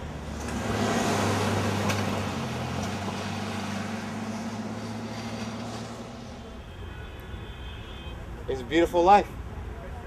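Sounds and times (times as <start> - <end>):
vehicle rushing sound: 0.0 - 6.6.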